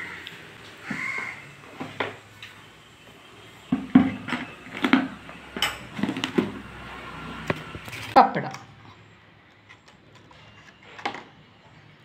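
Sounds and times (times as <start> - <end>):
dishes clinking and knocking: 3.7 - 6.6.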